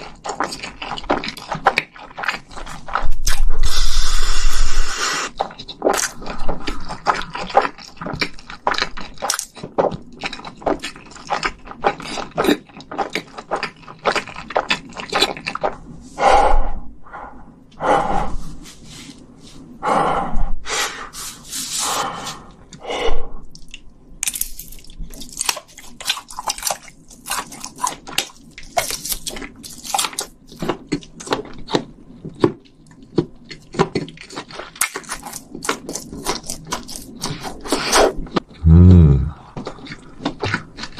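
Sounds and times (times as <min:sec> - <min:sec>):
wet chewing and smacking: 0:00.0 - 0:04.2, 0:05.3 - 0:16.0, 0:23.4 - 0:38.6, 0:39.3 - 0:40.9.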